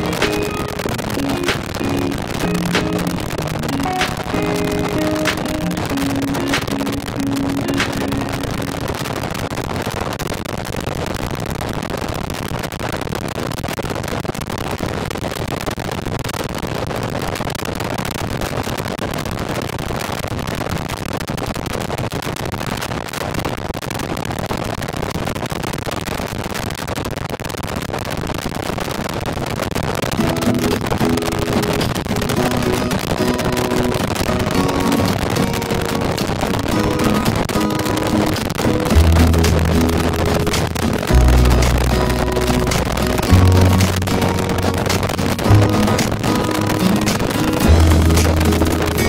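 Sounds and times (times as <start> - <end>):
music: 0.0 - 9.0, 30.2 - 49.0.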